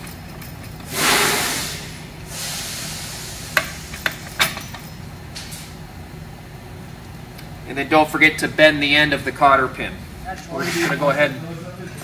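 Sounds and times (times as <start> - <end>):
air hissing: 0.8 - 4.3.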